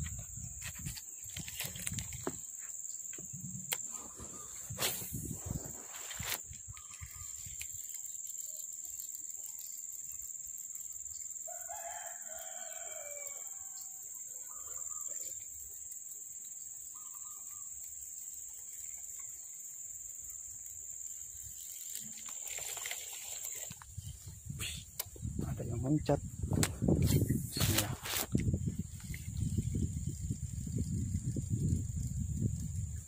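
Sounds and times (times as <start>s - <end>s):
rooster crowing: 11.5s - 14.9s.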